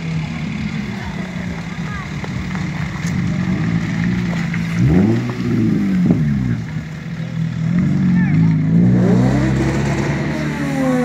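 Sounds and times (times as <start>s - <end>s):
car engine idling and revving: 0.0s - 11.0s.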